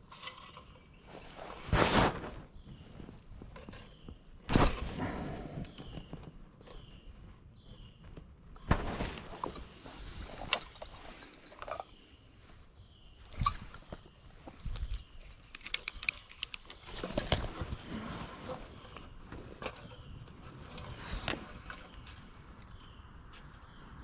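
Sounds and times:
short insect chirp: 0.0 - 17.6, 21.0 - 24.0.

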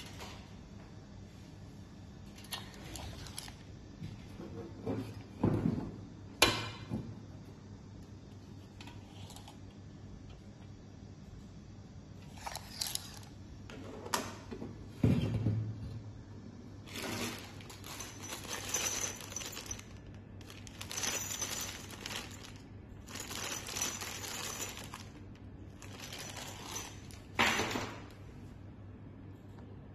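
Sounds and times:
plastic bag crinkling: 16.9 - 25.2, 25.8 - 27.3.

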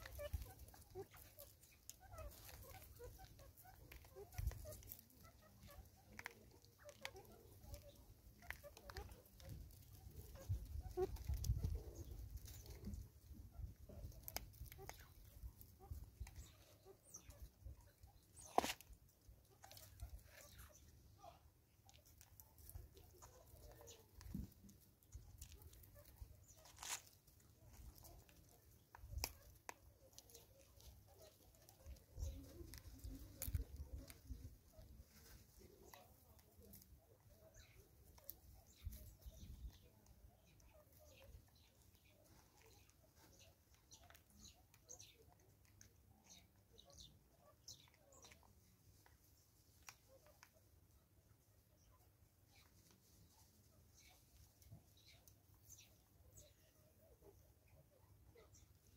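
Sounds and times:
monkey chewing seeds: 21.6 - 46.6.

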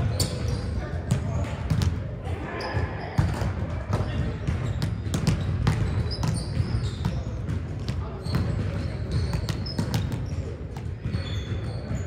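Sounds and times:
rumble of voices: 0.0 - 12.0.

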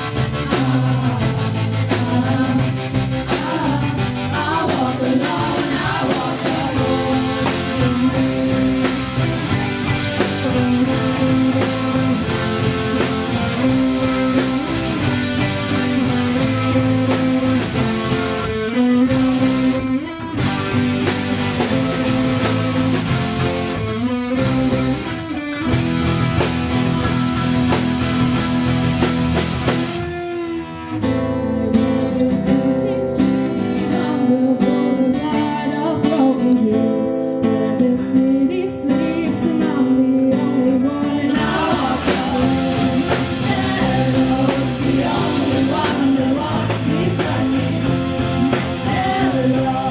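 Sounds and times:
voices singing: 0.0 - 19.8, 37.9 - 49.9
drum kit: 0.0 - 34.1, 41.1 - 49.9
electric and acoustic guitars: 0.0 - 49.9.

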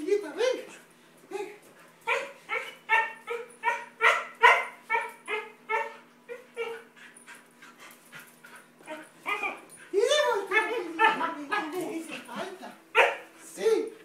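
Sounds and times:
dog whining yips: 2.1 - 6.9.

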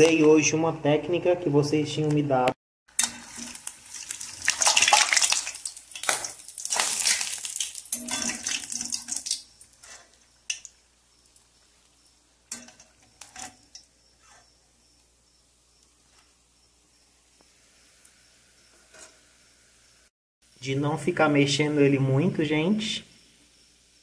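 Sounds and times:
food sizzling in hot oil: 2.9 - 20.1, 23.1 - 24.0.

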